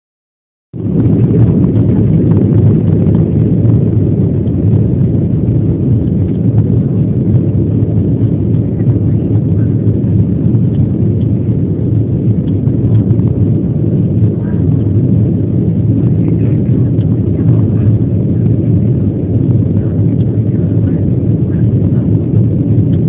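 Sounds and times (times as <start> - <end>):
jet airliner rumble from cabin: 0.7 - 23.0.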